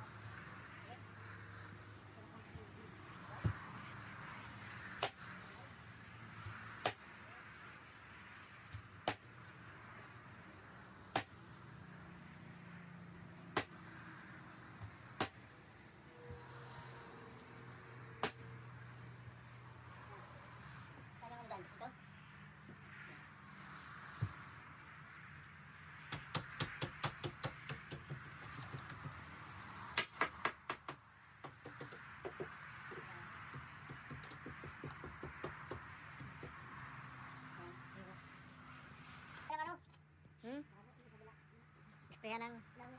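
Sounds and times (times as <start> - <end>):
sharp knocks on timber post: 8.7 - 9.2, 11.1 - 11.4, 18.2 - 18.4, 26.1 - 29.3, 30.0 - 36.6.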